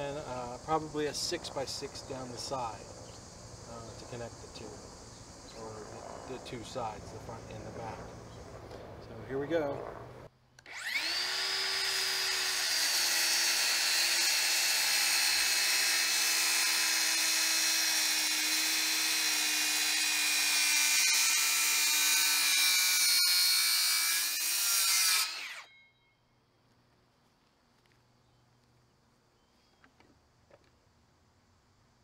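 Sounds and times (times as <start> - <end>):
circular saw cutting wood: 10.6 - 25.9.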